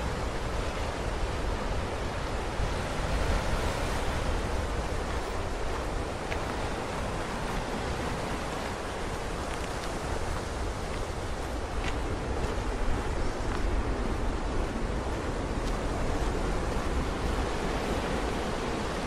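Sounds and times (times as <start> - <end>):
surf washing over rocks: 0.0 - 19.0.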